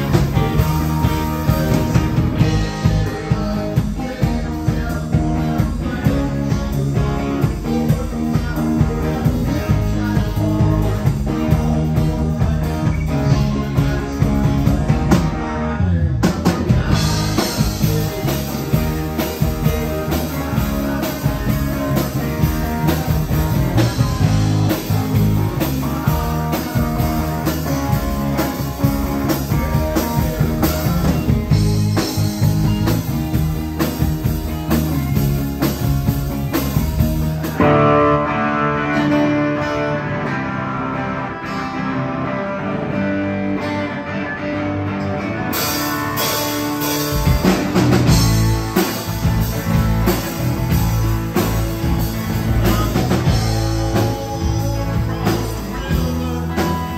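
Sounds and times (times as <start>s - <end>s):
man singing into a microphone: 0.0s - 33.0s, 52.4s - 56.9s
drum kit: 0.0s - 44.2s, 44.8s - 56.9s
bass guitar: 0.0s - 56.9s
electric guitar: 0.0s - 56.9s.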